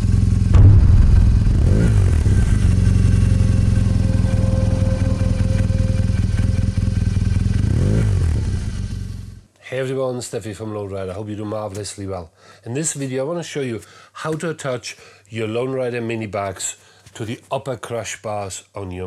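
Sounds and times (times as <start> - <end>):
motorcycle engine running: 0.0 - 9.4
sharp hit: 0.5 - 7.8.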